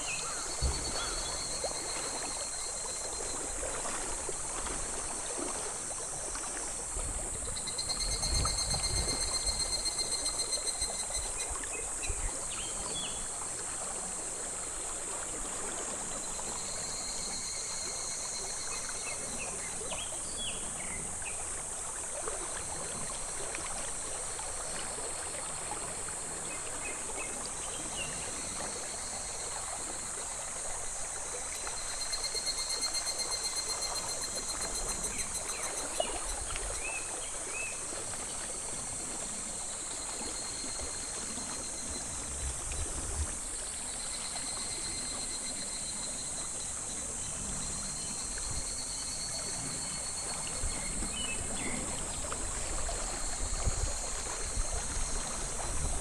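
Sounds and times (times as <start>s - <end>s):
cicadas singing: 0.0s - 3.6s, 5.7s - 13.3s, 26.5s - 37.8s
stream babbling over pebbles: 0.0s - 56.0s.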